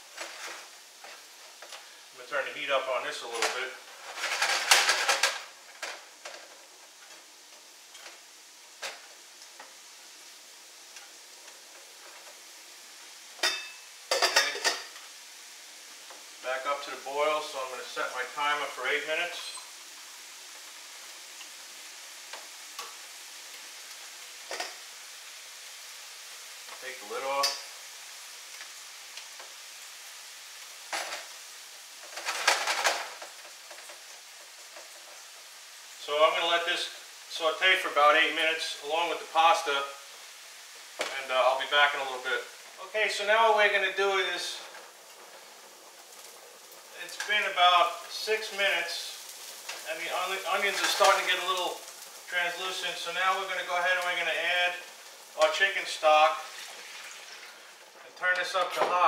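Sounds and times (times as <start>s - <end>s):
onions sizzling in fat: 0.0s - 59.0s
spatula scraping skillet: 41.8s - 59.0s.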